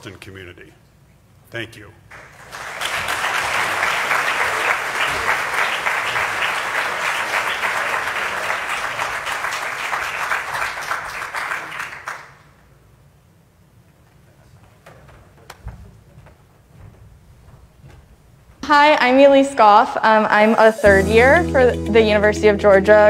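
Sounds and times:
audience applauding: 2.1 - 12.5.

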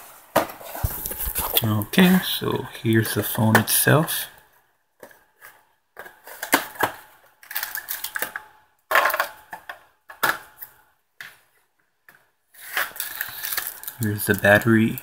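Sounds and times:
plastic packaging crinkling: 0.8 - 2.3, 7.5 - 8.2, 12.7 - 15.0.

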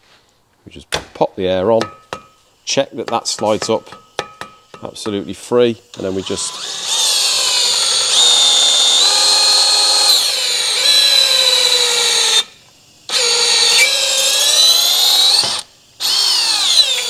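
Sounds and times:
cordless drill motor whining: 6.0 - 12.5, 13.1 - 17.0.

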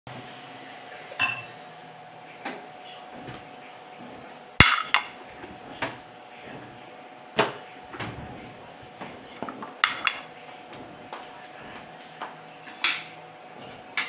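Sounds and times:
dishes and pots clinking: 1.2 - 1.5, 4.6 - 6.0, 9.2 - 11.2, 12.2 - 14.0.

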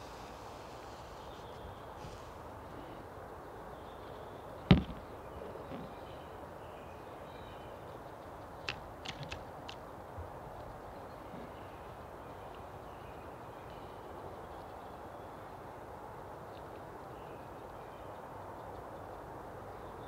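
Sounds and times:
faint background hiss: 0.0 - 20.0
sudden thump: 4.7 - 5.0.

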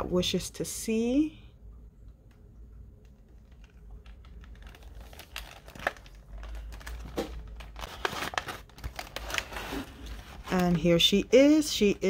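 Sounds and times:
plastic packaging crinkling: 3.1 - 12.0.

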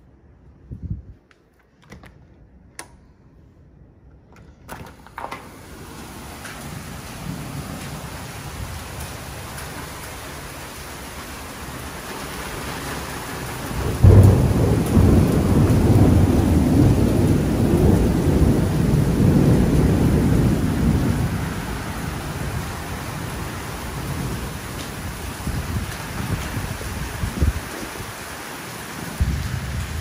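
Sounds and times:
heavy rain: 5.2 - 30.0
rumbling thunderclap: 5.6 - 28.3, 28.9 - 30.0.

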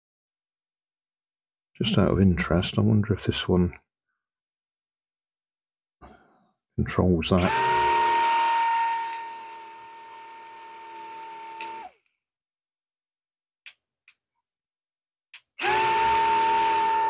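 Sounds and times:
small propeller motors whining: 7.5 - 12.0, 15.6 - 17.0.

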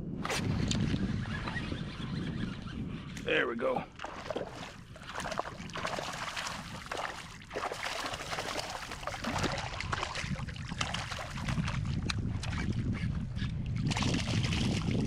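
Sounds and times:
wind rumbling on microphone: 0.0 - 15.0
water splashing and lapping: 3.9 - 15.0.

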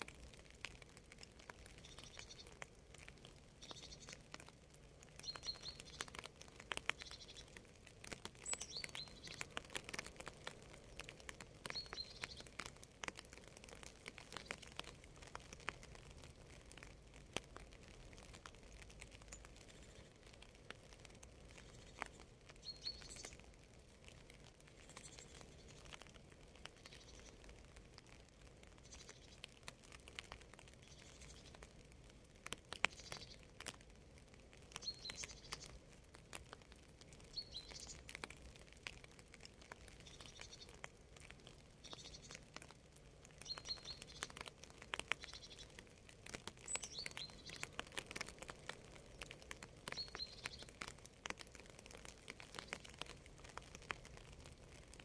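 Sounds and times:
faint rain drops pattering: 0.0 - 55.0
bird chirping: 1.7 - 2.6, 3.6 - 4.2, 5.2 - 7.6, 8.4 - 10.0, 10.8 - 12.6, 21.5 - 23.4, 26.8 - 27.4, 28.8 - 29.4, 32.9 - 33.4, 34.8 - 35.8, 37.2 - 38.1, 40.0 - 40.8, 41.8 - 42.4, 43.4 - 44.5, 45.1 - 45.8, 46.6 - 47.8, 49.9 - 50.8.

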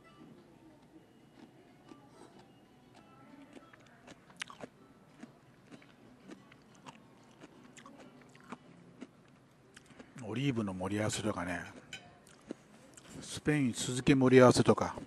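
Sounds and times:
person chewing food: 1.3 - 10.2, 11.7 - 13.2.

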